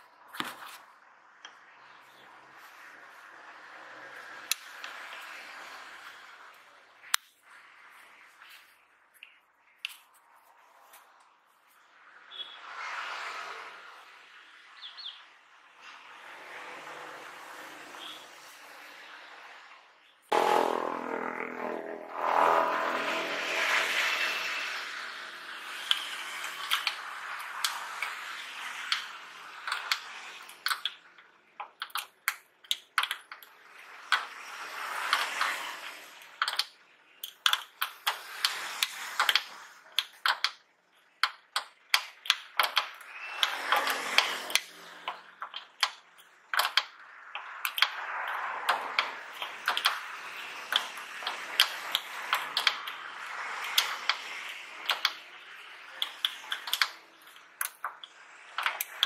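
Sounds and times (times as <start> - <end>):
steady rushing noise: 15.4 - 32.6, 33.3 - 59.0
screwdriver metallic clicks and taps: 31.6 - 33.5, 36.4 - 40.6, 41.2 - 46.0, 46.6 - 50.0, 50.7 - 53.0, 54.8 - 55.2, 56.0 - 59.0.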